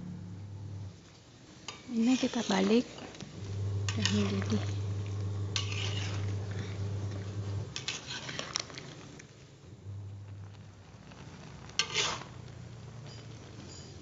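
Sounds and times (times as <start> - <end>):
low hum: 0.0 - 1.1, 3.2 - 7.8, 9.6 - 11.3
water boiling in a pan: 0.8 - 14.0
metal spoon scraping a pan: 1.6 - 9.3, 11.1 - 14.0.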